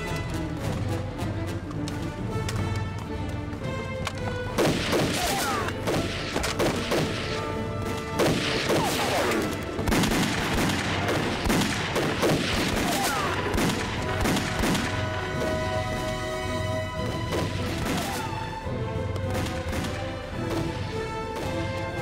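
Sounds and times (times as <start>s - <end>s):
dramatic background music: 0.0s - 22.0s
rifle gunfire: 4.6s - 7.4s, 8.2s - 15.0s.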